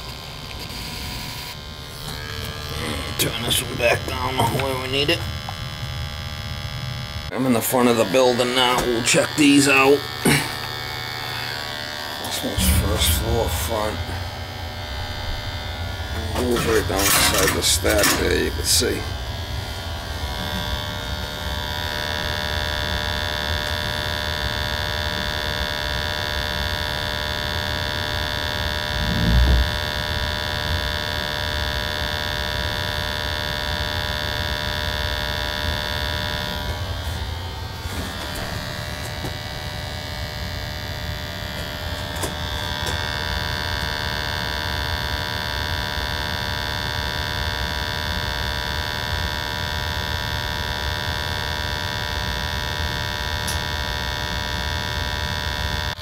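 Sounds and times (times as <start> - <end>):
sampling pump electric hum: 0.0 - 56.0
high steady tones: 12.2 - 19.0.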